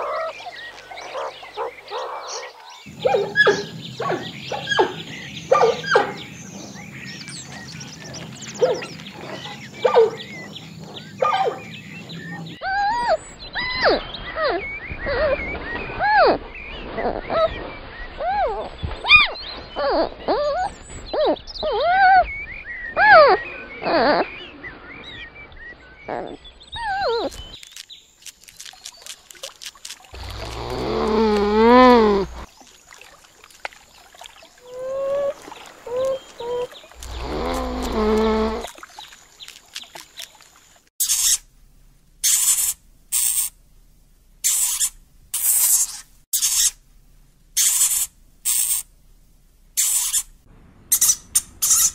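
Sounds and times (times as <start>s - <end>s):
rodent gnawing with crunching clicks: 27.3s - 30.9s
animal whining calls: 30.2s - 32.5s, 34.6s - 38.7s.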